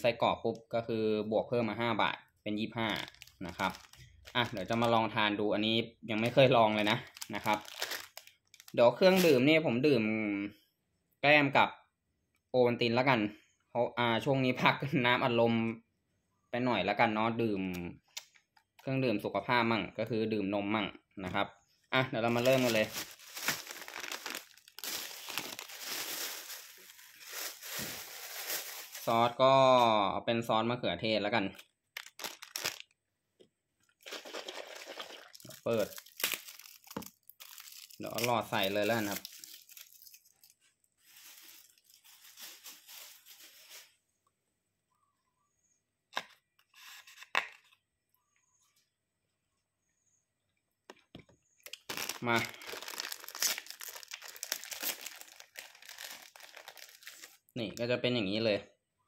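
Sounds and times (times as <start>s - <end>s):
plastic packaging crinkling: 2.8s - 5.0s, 6.2s - 9.4s, 22.2s - 29.3s, 32.0s - 33.0s, 34.0s - 44.0s, 51.7s - 57.5s.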